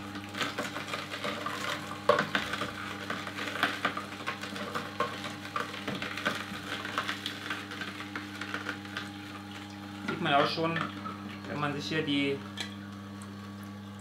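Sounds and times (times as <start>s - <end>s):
juicer motor hum: 0.0s - 14.0s
carrots crunching: 0.4s - 10.7s.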